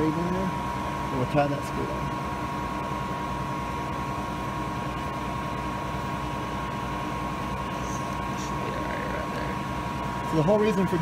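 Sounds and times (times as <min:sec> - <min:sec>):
shop machinery humming: 0:00.0 - 0:11.0.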